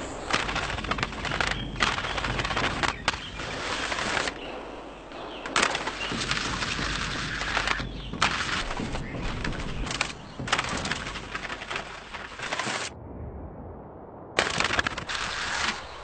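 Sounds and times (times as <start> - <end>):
skis scraping over stone: 0.0 - 4.4, 5.3 - 12.9, 14.4 - 16.0.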